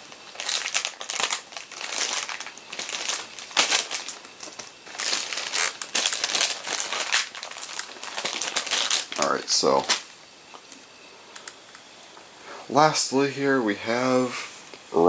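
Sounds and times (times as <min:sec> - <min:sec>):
plastic packaging crinkling: 0:00.0 - 0:11.9.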